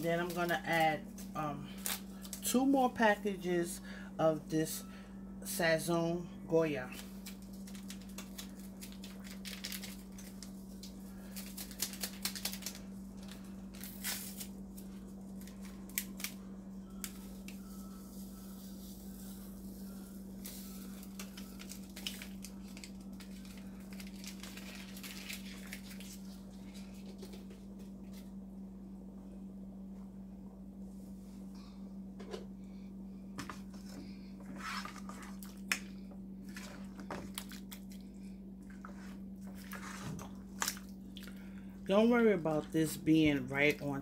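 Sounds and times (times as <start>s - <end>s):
foil packets crinkling and tearing: 0.0s - 2.6s, 6.9s - 16.4s, 20.4s - 27.4s
steady low hum: 0.0s - 44.0s.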